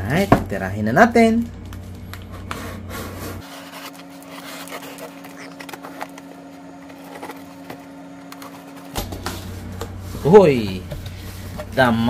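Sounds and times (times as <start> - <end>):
faint steady hum: 0.0 - 12.0
plastic pouch crinkling: 3.5 - 6.3.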